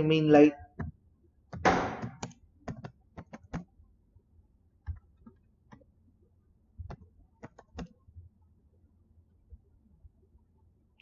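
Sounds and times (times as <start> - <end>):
keyboard typing: 0.8 - 3.8, 6.8 - 8.1.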